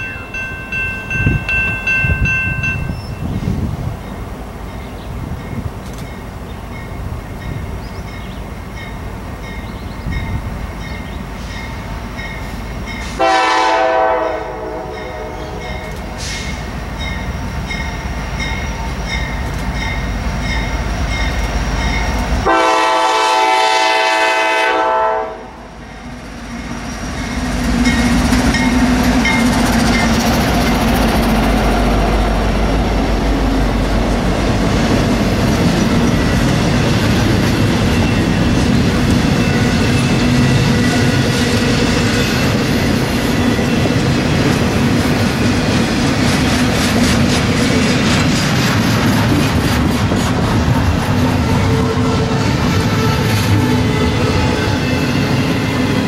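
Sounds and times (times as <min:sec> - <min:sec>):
crossing bell dinging: 0:00.0 - 0:03.3, 0:04.7 - 0:22.8, 0:26.6 - 0:30.4
train wheels rumbling on rail: 0:00.0 - 0:56.0
locomotive horn blasts: 0:13.1 - 0:15.9, 0:22.4 - 0:25.6, 0:51.5 - 0:54.6.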